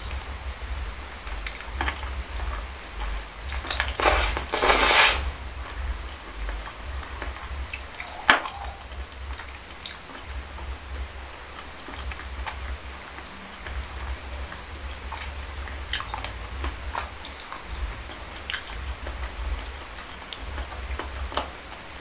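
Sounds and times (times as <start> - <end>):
wet chewing: 11.4 - 22.0.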